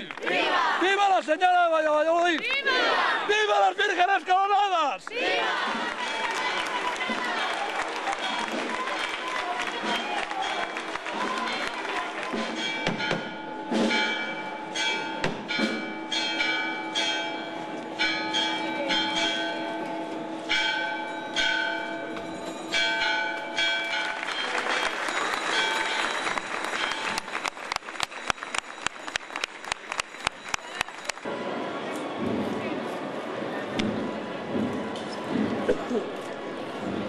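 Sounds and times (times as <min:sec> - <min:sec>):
noisy patter: 0:04.2 - 0:37.0
church bells pealing: 0:06.0 - 0:31.7.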